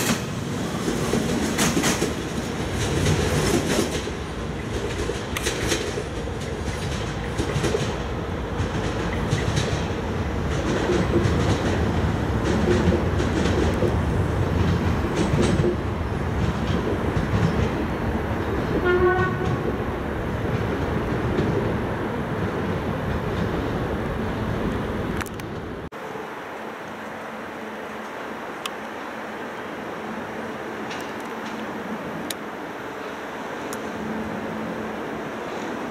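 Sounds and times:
wheels clicking over rail joints: 0.0s - 21.8s
railcar rumbling: 0.0s - 35.9s
train horn blast: 18.8s - 19.7s.

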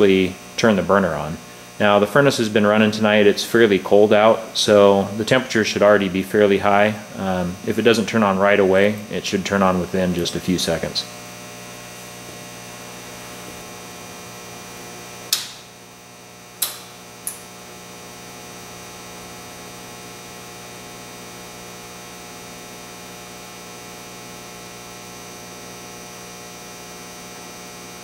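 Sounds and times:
electrical mains hum: 0.0s - 28.0s
temperature controller clicks: 15.3s - 15.7s, 16.6s - 17.5s.

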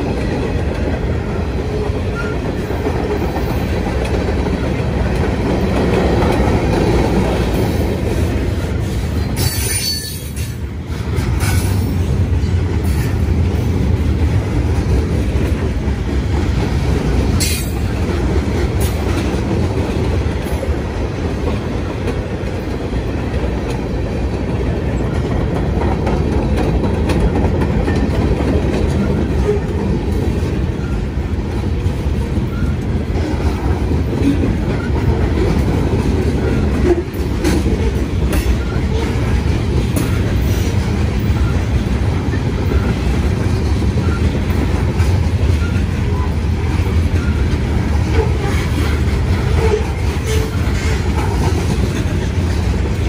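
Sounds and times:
train wheels rumbling on rail: 0.0s - 53.0s
wheel squeals: 8.7s - 10.5s.

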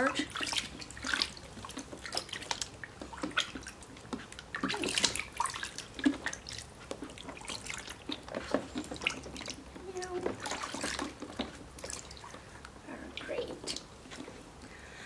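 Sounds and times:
water splashing in a bathtub: 0.0s - 14.7s.

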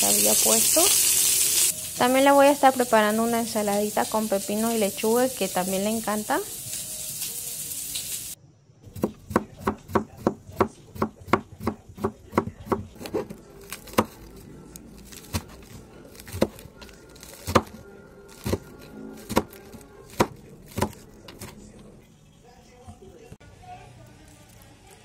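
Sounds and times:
knife chopping on cutting board: 8.9s - 14.2s, 15.2s - 21.6s.

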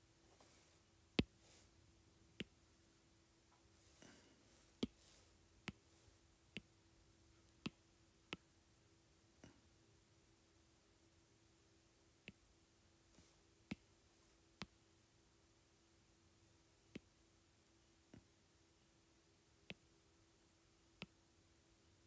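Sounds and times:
faint steady hum: 0.0s - 22.0s
soft breathing: 0.2s - 2.6s, 3.5s - 6.7s, 13.1s - 14.5s.

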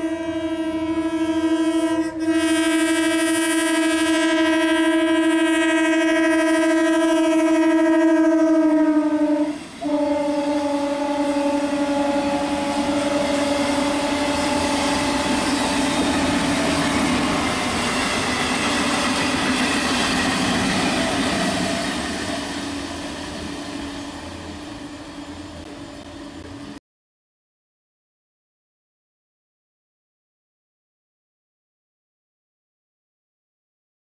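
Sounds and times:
train horn blast: 0.0s - 17.3s
train wheels running: 8.9s - 26.8s.

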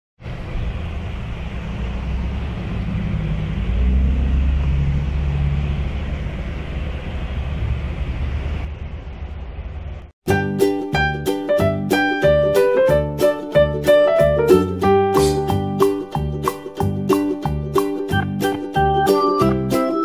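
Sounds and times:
steady low rumble: 0.2s - 10.2s
light plucked piano-like music: 10.3s - 20.0s.

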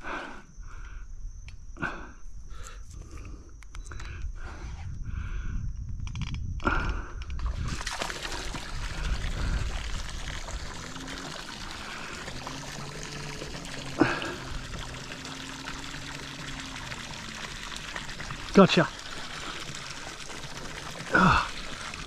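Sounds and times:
water trickling and pouring: 7.5s - 22.0s.

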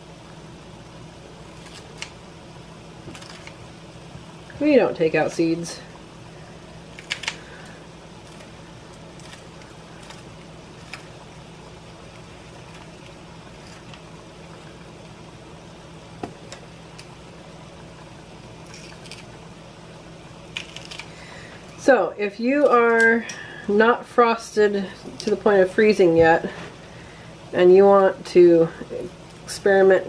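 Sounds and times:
low hum and hiss: 0.0s - 30.0s
scissors snipping peppers: 1.5s - 2.2s, 3.1s - 3.6s, 6.9s - 11.2s, 18.6s - 19.3s, 20.5s - 21.2s.

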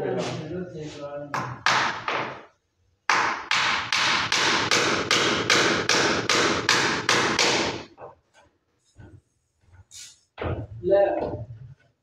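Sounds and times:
nailing strikes: 3.1s - 8.0s.

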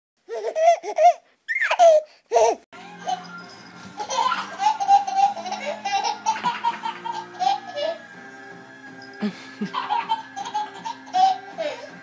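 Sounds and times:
baby laughing: 0.3s - 3.3s, 4.0s - 8.0s, 9.6s - 12.0s
music: 2.8s - 12.0s.

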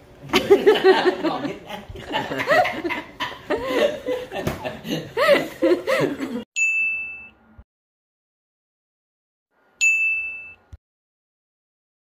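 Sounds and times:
people laughing: 0.2s - 6.4s
electronic ding: 6.6s - 7.5s, 9.8s - 10.8s.

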